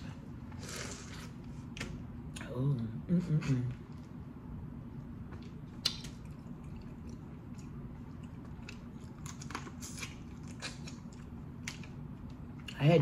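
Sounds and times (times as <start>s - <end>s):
faint low hum: 0.0s - 13.0s
sucking: 0.5s - 1.4s
wet mouth smacks: 5.3s - 6.5s
chewing crackles: 5.3s - 12.8s.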